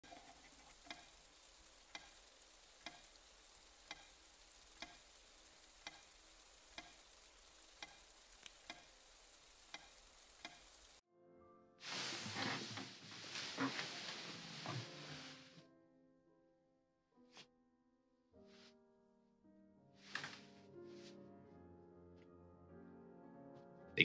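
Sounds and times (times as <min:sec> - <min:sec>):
clock ticking: 0:00.0 - 0:07.2, 0:07.8 - 0:09.0, 0:09.7 - 0:10.8
faint hiss: 0:00.0 - 0:11.0, 0:11.8 - 0:15.6.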